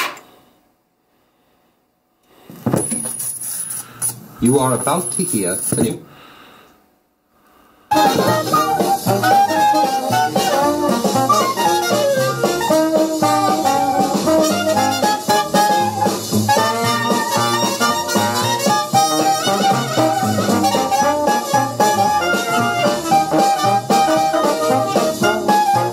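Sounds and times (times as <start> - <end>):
instrumental music with steady beat: 7.9 - 25.9.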